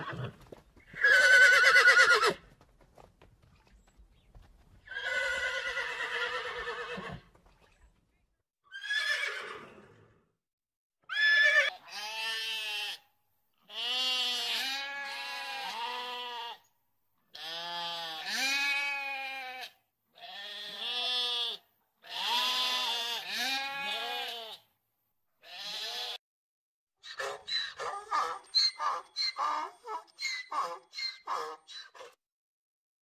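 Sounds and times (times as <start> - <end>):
sheep bleating: 11.6 - 13.0, 13.6 - 16.7, 17.3 - 24.6, 25.4 - 26.2.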